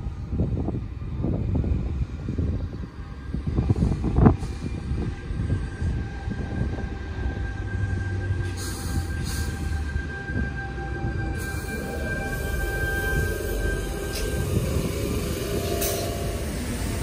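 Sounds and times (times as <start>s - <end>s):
electric train rumble and whine: 0.0s - 17.0s.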